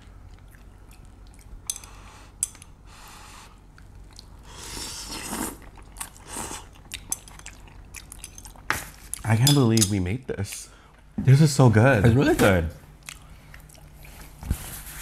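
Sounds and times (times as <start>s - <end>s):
noodles being slurped: 4.5s - 6.7s.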